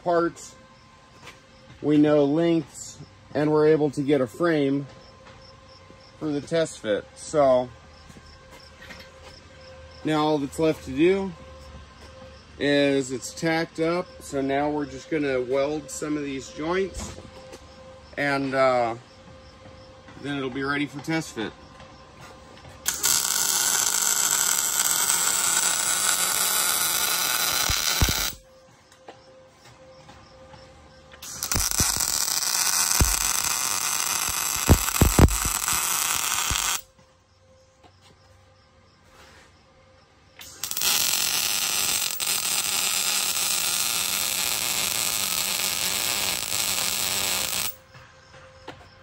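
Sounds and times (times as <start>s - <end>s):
welding arc sizzling: 22.9s - 28.4s, 31.2s - 36.9s, 40.4s - 47.8s.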